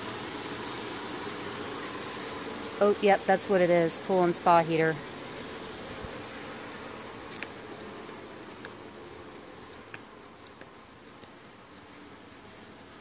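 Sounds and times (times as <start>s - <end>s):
pool equipment humming: 0.0s - 13.0s.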